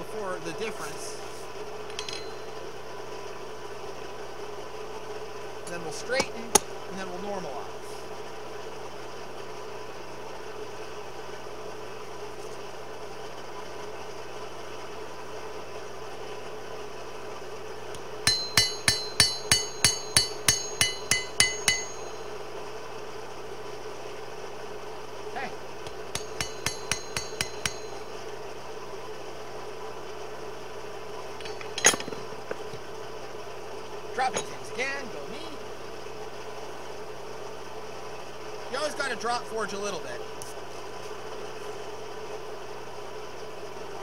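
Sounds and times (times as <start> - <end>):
steady hum: 0.0 - 44.0
hammer striking steel on anvil: 1.9 - 2.6, 6.2 - 6.8, 18.2 - 22.4, 25.8 - 28.2, 31.4 - 32.6, 34.2 - 34.7.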